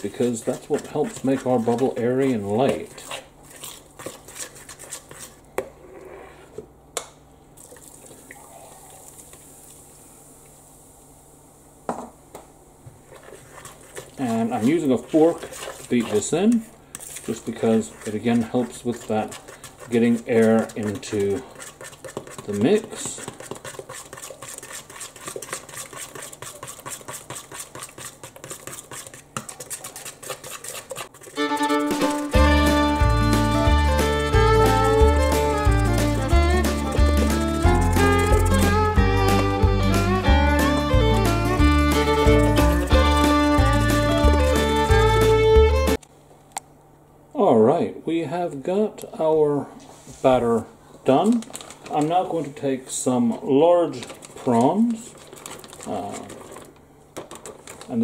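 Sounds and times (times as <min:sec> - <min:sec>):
fork beating batter in bowl: 0:00.0 - 0:05.8, 0:13.1 - 0:46.0, 0:54.0 - 0:57.9.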